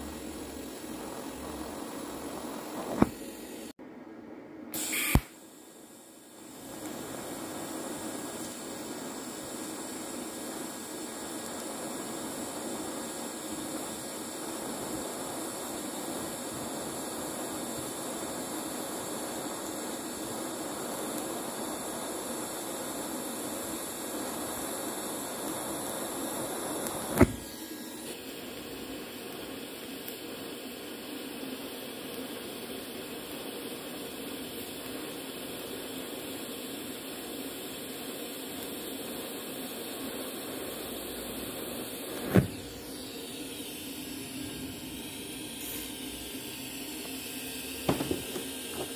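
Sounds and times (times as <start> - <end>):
welding arc hissing: 0.0 - 3.8, 4.8 - 48.9
sharp click: 4.8 - 5.4.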